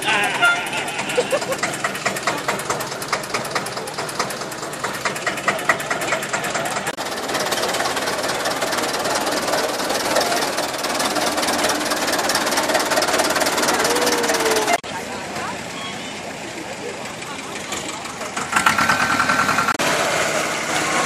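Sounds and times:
tractor engines knocking: 0.0 - 21.0.

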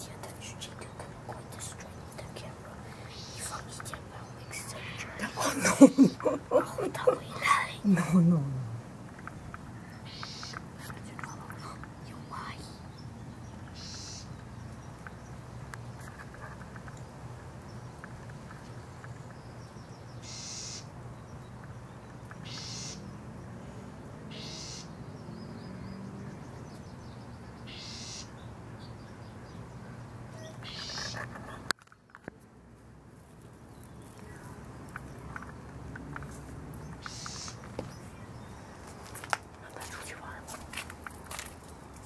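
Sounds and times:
short high bird calls: 10.0 - 10.6, 13.7 - 14.3, 20.2 - 20.9, 22.4 - 23.0, 24.3 - 24.9, 27.7 - 28.3, 30.4 - 31.6, 37.0 - 37.6.

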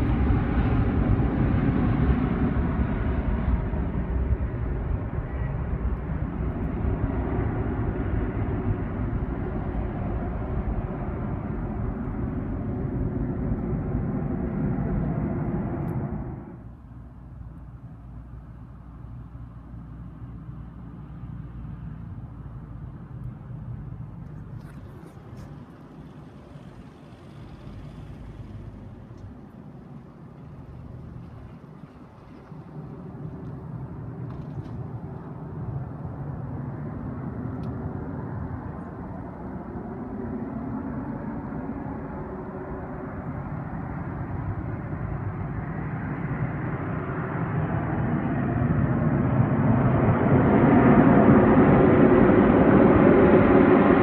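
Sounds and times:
wind buffeting microphone: 0.0 - 16.8
distant jet engines rumbling: 0.0 - 54.0.

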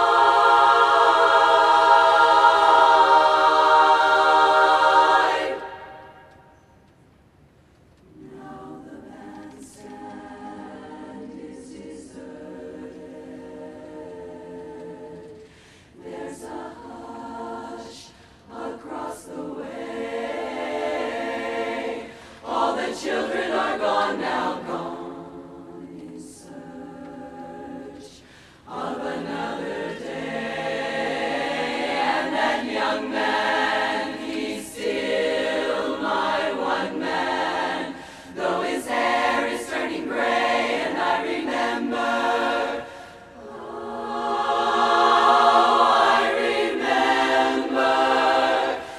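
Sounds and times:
women's chorus singing a cappella: 0.0 - 6.5, 8.1 - 48.9.

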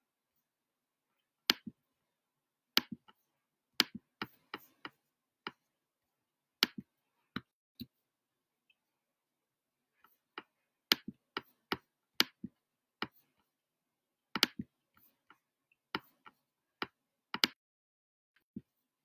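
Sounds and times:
sharp dry clicks and taps: 14.4 - 14.7, 16.8 - 17.6.

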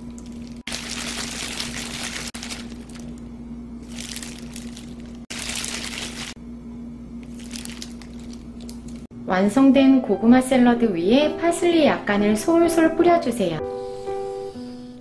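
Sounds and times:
plastic gloves crinkling: 0.0 - 6.4, 7.2 - 9.1
steady low hum: 0.0 - 14.3.

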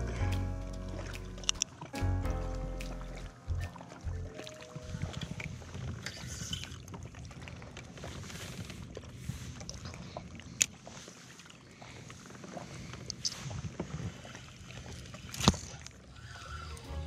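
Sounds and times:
water lapping at kayak hull: 0.0 - 17.0.

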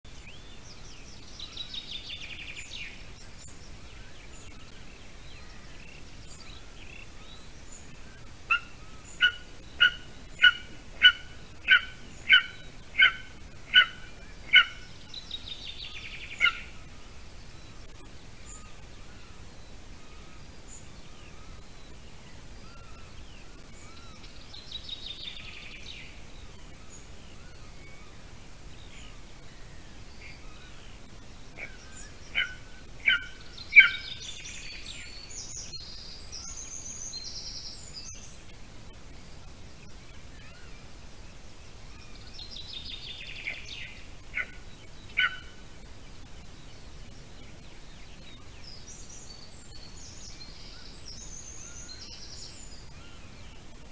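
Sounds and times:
songbird trilling: 0.2 - 16.9, 28.8 - 38.4, 41.9 - 47.0
eagle chick calling: 8.5 - 15.0, 16.0 - 16.8, 31.5 - 34.3, 44.3 - 45.6.

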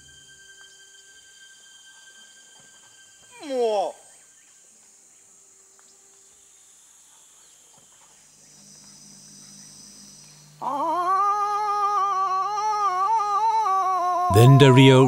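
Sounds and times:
insects buzzing: 0.0 - 14.3
man imitating animal call: 10.6 - 15.0.

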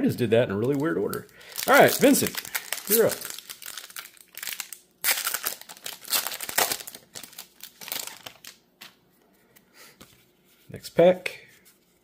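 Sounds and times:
foil wrapper tearing and crinkling: 0.6 - 8.6.

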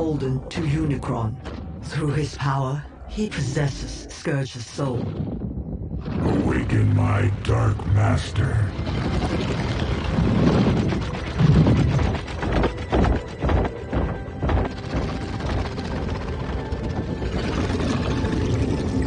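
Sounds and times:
low rumbling swells: 0.0 - 19.0
dark orchestral music: 6.2 - 19.0.

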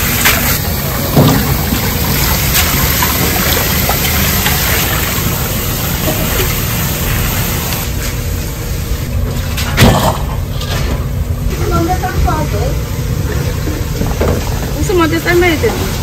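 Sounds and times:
tap water running into sink: 0.0 - 7.9.

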